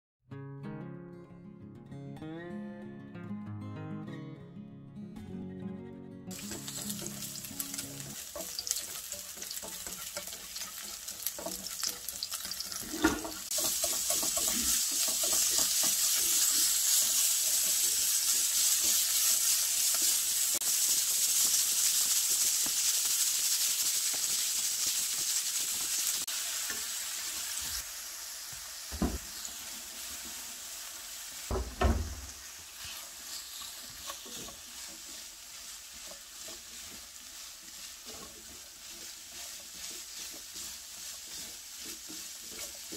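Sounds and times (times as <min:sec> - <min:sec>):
oil sizzling in a wok: 0:06.3 - 0:42.9
knocks on a wok: 0:28.9 - 0:29.3, 0:31.5 - 0:32.4.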